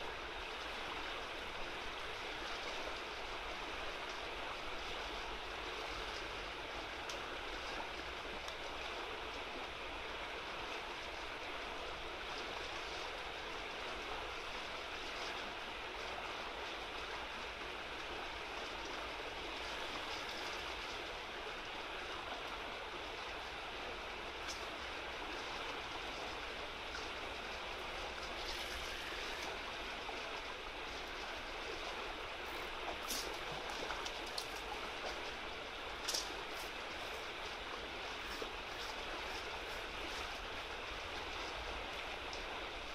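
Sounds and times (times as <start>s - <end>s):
river water rushing: 0.0s - 42.9s
faint ticks: 24.4s - 24.7s.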